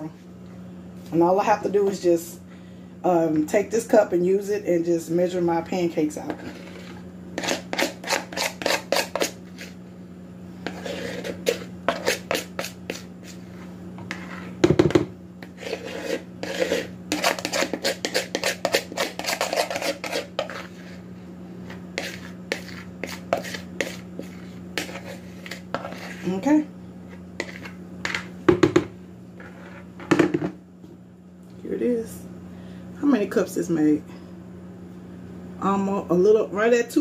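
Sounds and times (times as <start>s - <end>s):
steady low hum: 0.0s - 37.0s
metal spoon scraping bowl: 6.2s - 9.8s, 10.6s - 14.6s, 15.4s - 21.0s, 22.0s - 26.5s, 27.4s - 28.3s.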